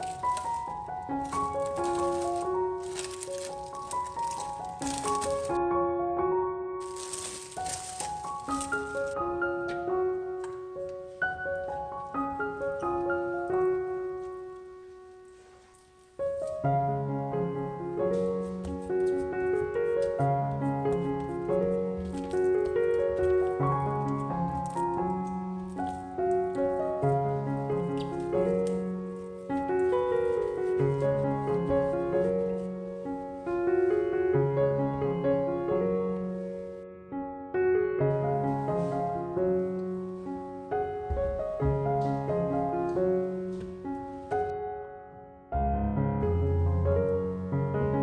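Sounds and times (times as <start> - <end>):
piano music: 0.0 - 48.0.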